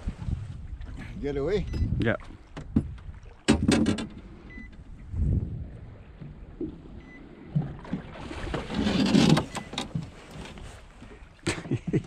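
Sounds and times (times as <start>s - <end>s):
wind on microphone: 0.0s - 10.8s
waves lapping against metal boat: 0.0s - 12.0s.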